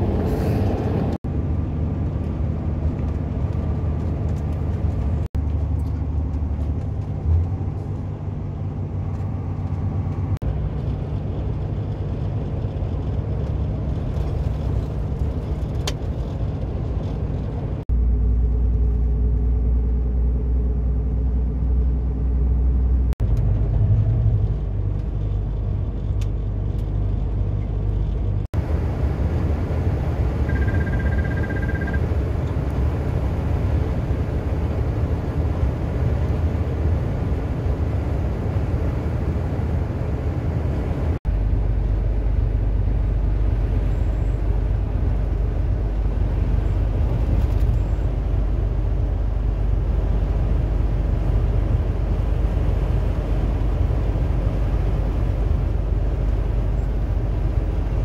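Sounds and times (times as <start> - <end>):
engine and road rumble in cab: 0.0 - 58.0
steady high tone: 30.4 - 32.1.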